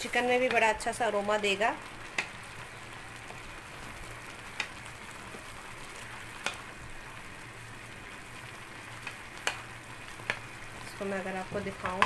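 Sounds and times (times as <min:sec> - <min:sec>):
hiss of cooking rice: 0:00.0 - 0:12.0
spatula stirring rice in a pot: 0:02.0 - 0:06.8, 0:08.8 - 0:11.0.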